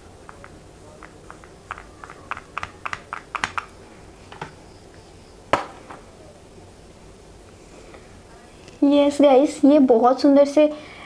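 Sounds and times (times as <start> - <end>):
louder knock: 5.5 - 6.0.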